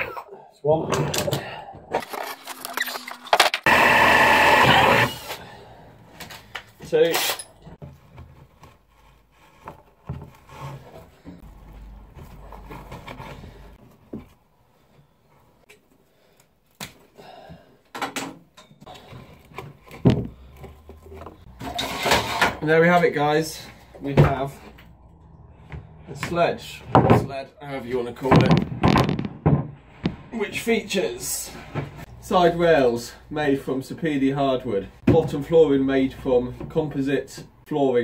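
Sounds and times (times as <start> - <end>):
power drill running: 3.6 - 5.4.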